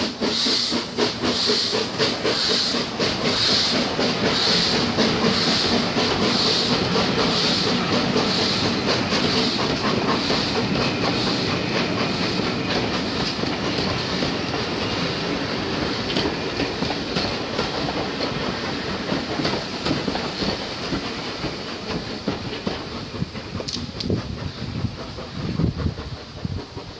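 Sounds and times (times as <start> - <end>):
train carriages rolling past: 0.0 - 26.9
wheels clicking over rail joints: 0.0 - 26.9.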